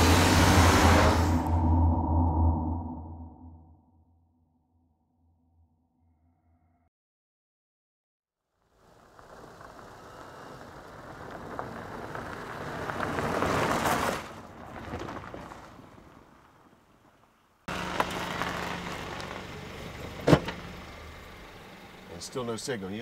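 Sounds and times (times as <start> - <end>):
car driving past: 0.0 - 3.6.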